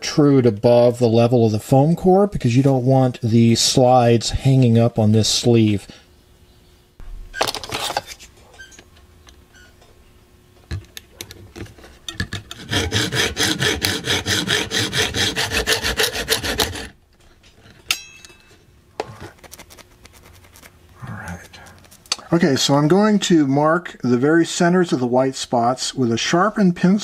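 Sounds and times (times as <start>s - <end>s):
hand saw cutting metal tubing: 12.4s - 17.0s
light metallic clink: 17.9s - 18.7s.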